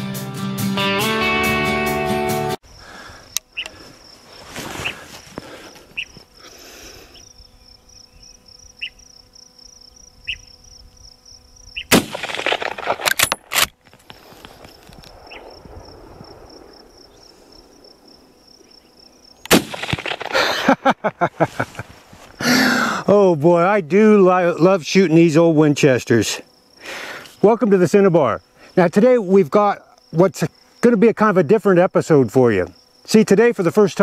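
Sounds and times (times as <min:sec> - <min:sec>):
insect trilling: 0:02.6 - 0:34.0
rifle shots with rolling echo: 0:11.9 - 0:13.7, 0:15.1 - 0:18.3, 0:19.5 - 0:20.7
rifle lever clicks: 0:12.2 - 0:14.1.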